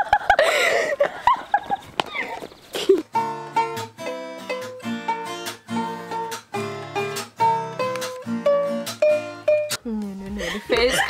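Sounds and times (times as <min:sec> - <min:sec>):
ukulele strumming chords: 0:03.1 - 0:11.0.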